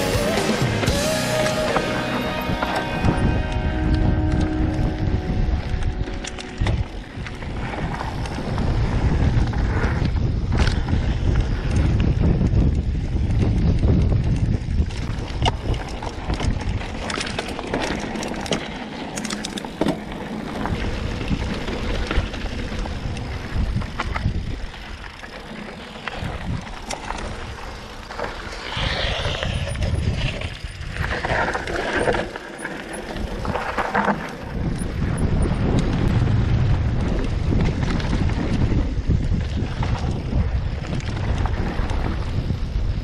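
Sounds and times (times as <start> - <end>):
bike rattling and clicking: 0.0 - 43.0
wind buffeting microphone: 2.4 - 18.8, 19.8 - 43.0
tyres on dirt and stones: 12.9 - 42.8.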